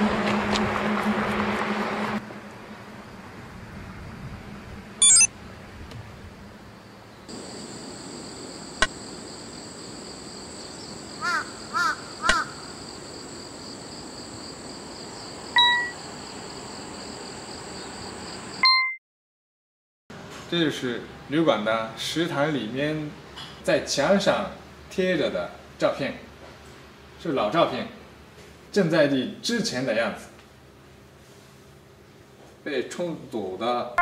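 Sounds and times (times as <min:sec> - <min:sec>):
road noise: 0:00.0 - 0:18.6
short tone: 0:05.0 - 0:05.3, 0:15.6 - 0:16.0, 0:18.6 - 0:19.0
crow cawing: 0:11.2 - 0:12.7.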